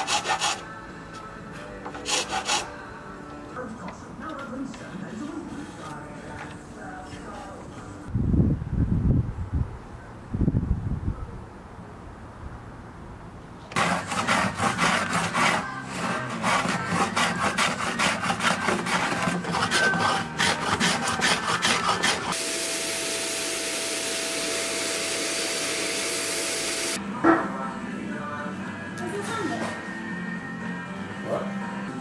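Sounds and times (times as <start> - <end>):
hand plane shaving wood: 0.0 - 0.6, 1.9 - 2.7, 13.7 - 22.4
machine whir: 22.2 - 27.0.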